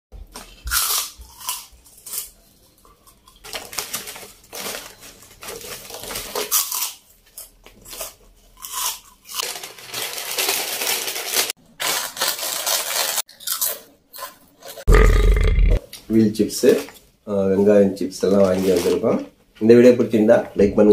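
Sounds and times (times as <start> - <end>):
crunching crisp snacks: 0.4 - 15.2.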